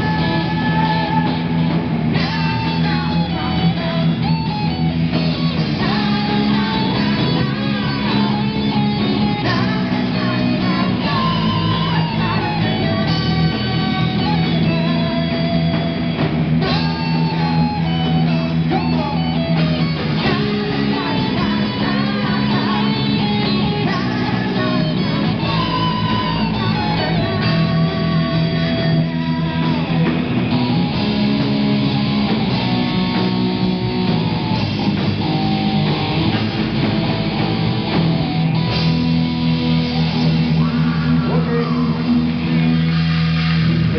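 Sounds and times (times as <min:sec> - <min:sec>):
person singing into a microphone: 0:00.0 - 0:15.6, 0:16.6 - 0:30.2
live rock band playing: 0:00.0 - 0:43.9.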